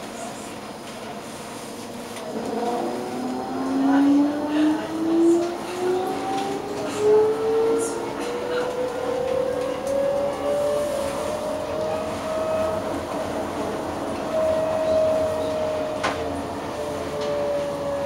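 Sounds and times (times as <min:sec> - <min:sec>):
tram rumble: 0:00.0 - 0:18.0.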